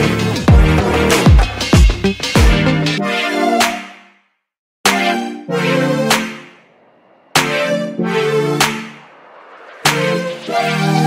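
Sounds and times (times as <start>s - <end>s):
background music: 4.9s - 11.0s.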